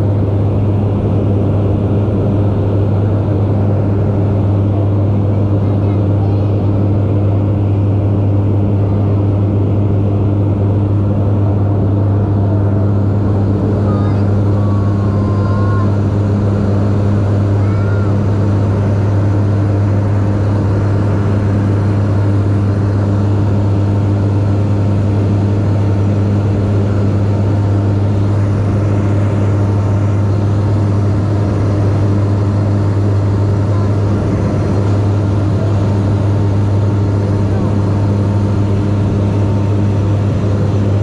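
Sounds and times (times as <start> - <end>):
small plane engine drone: 0.0 - 41.0.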